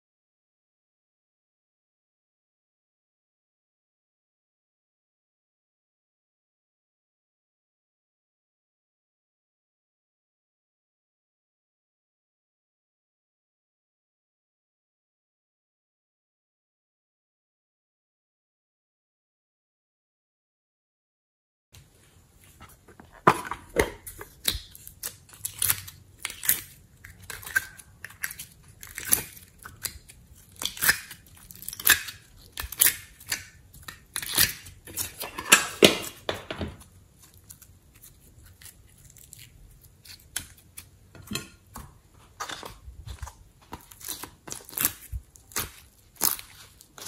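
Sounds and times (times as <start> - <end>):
clay tearing and crackling: 24.0 - 41.0, 42.6 - 47.0.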